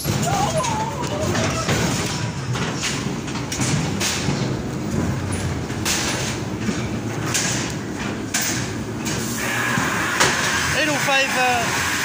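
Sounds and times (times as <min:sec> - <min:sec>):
noisy surges: 0:00.0 - 0:12.0
ride car rumbling on track: 0:00.0 - 0:12.0.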